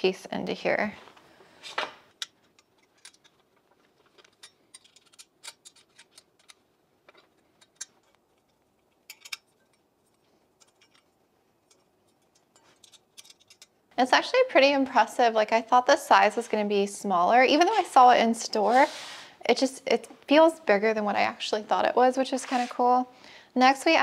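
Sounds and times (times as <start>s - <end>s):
metal tubes clinking: 2.2s - 13.8s
allen wrench clicking on screws: 4.2s - 6.6s, 7.6s - 9.8s, 11.7s - 13.7s.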